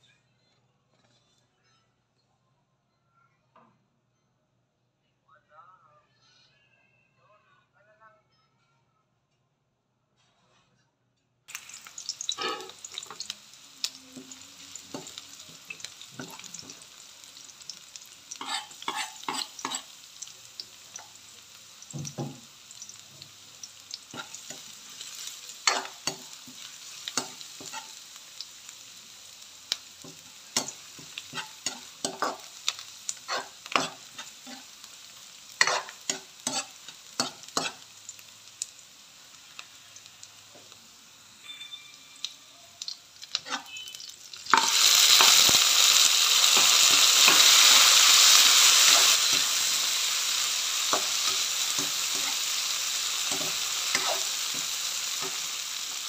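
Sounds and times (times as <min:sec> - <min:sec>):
food frying with sizzle: 0:11.5 - 0:56.0
loud sizzle in hot oil: 0:11.5 - 0:56.0
spatula scraping a wok: 0:12.2 - 0:13.2, 0:18.3 - 0:20.0, 0:24.1 - 0:28.1, 0:30.0 - 0:34.9, 0:35.6 - 0:37.8, 0:43.3 - 0:49.9, 0:50.7 - 0:56.0.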